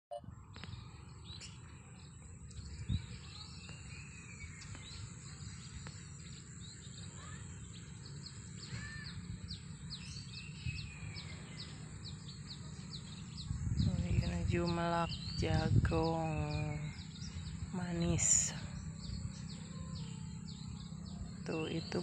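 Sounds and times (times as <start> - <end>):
small birds chirping: 0.2 - 22.0
low rumble: 7.6 - 22.0.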